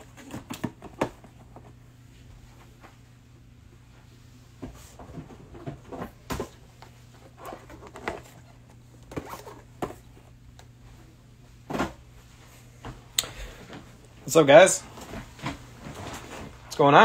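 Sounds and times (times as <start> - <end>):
cardboard boxes knocking and rustling: 0.0 - 1.8, 7.3 - 10.2
low steady hum: 0.0 - 17.0.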